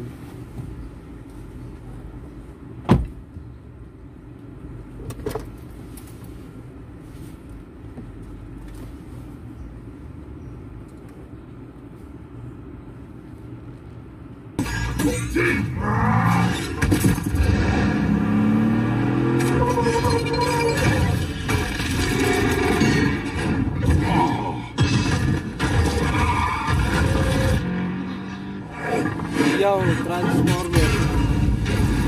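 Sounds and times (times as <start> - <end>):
truck cabin hum: 0.0 - 18.4.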